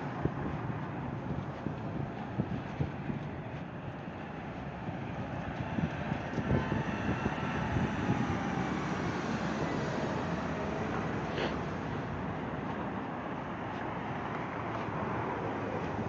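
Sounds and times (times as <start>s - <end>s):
city street traffic: 0.0s - 16.0s
vehicle passing close: 4.2s - 16.0s.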